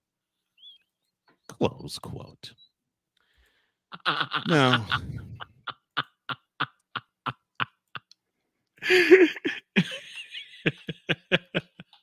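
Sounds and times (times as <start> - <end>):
man stifling laughter: 3.9 - 8.2, 8.8 - 12.0.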